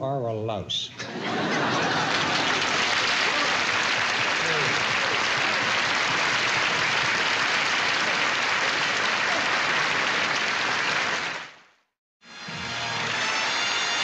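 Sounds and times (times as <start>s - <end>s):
audience applauding: 1.2s - 11.8s.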